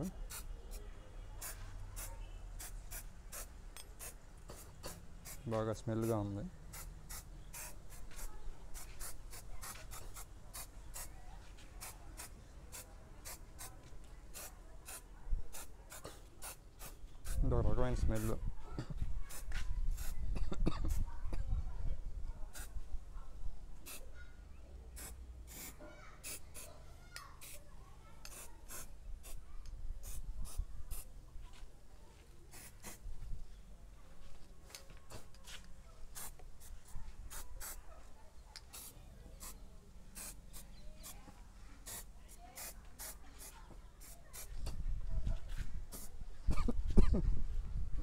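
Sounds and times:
aerosol spray can hissing: 1.4s - 5.4s, 6.7s - 11.1s, 14.3s - 17.4s, 19.3s - 20.2s, 25.0s - 26.7s, 28.2s - 29.4s, 32.5s - 33.0s, 36.1s - 36.7s, 37.3s - 37.8s, 38.7s - 39.6s, 40.2s - 40.7s, 41.8s - 44.5s.

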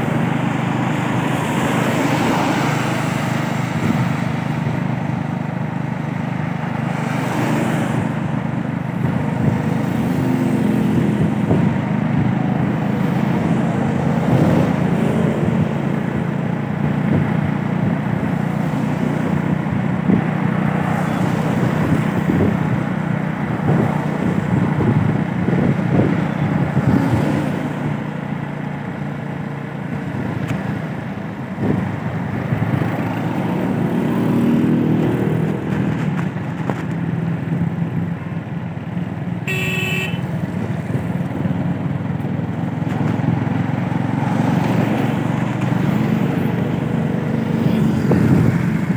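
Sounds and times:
tyres hissing on wet road: 0.0s - 4.6s.

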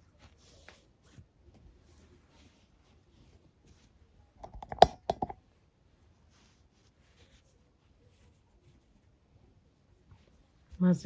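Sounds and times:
sharp clicks and knocks: 4.4s - 5.4s.

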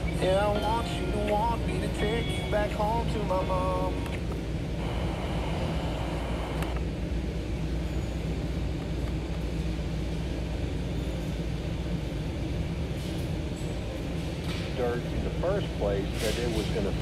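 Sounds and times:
radio static and hum: 1.2s - 6.8s, 14.8s - 17.0s.

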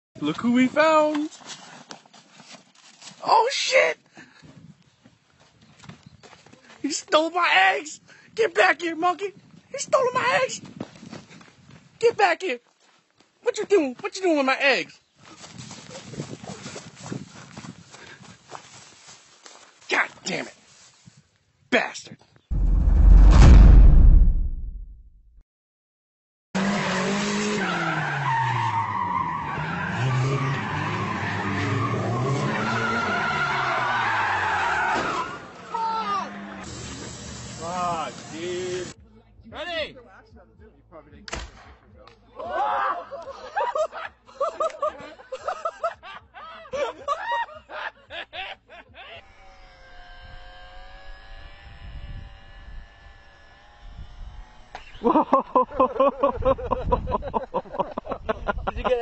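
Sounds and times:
low rumble: 22.5s - 25.3s
tyres squealing: 27.6s - 36.6s
people giggling: 42.4s - 49.3s, 55.0s - 59.0s.

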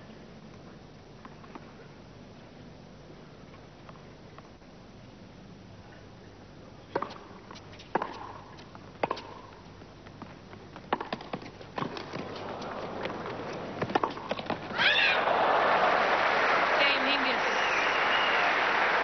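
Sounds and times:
tennis ball hit with racquets: 10.9s - 14.7s
crowd noise: 12.2s - 13.9s, 14.7s - 19.0s
crowd applause: 12.4s - 13.8s, 14.7s - 19.0s.

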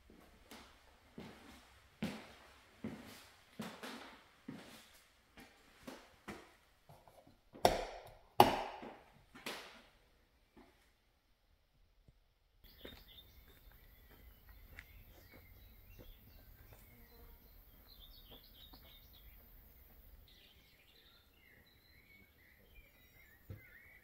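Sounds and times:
small birds chirping: 12.5s - 24.0s.

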